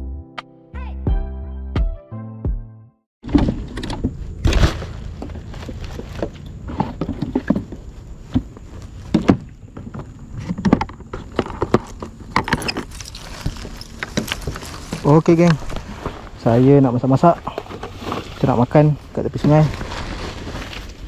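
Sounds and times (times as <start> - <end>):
rustling: 3.4 - 21.0.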